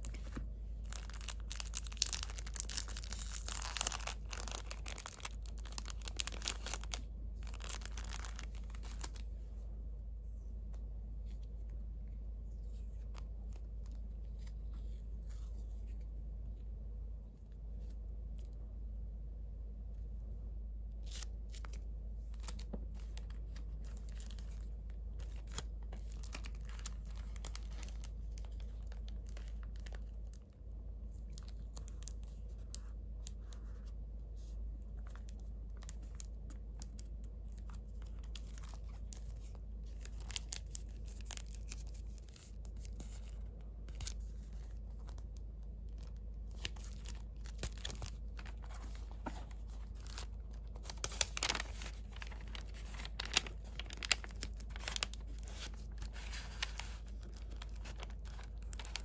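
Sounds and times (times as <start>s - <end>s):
paper rustling and crinkling: 0.0s - 9.4s, 21.0s - 30.5s, 31.1s - 59.0s
steady low hum: 0.0s - 59.0s
crisp paper taps: 50.8s - 59.0s.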